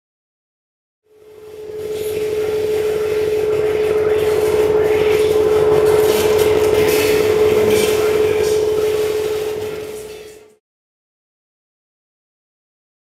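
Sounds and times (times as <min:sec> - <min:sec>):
grainy rasping noise: 0:01.1 - 0:10.6
steady electronic tone: 0:01.1 - 0:10.6.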